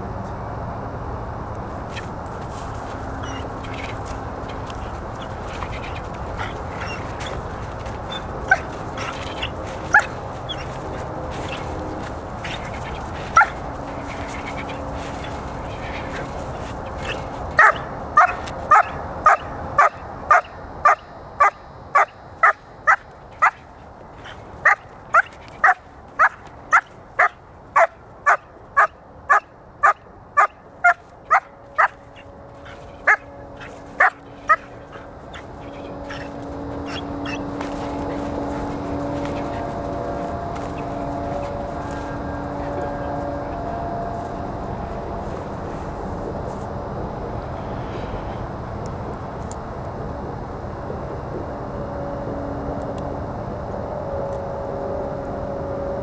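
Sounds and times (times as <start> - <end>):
puppy barking: 3.2 - 16.3, 17.0 - 37.4.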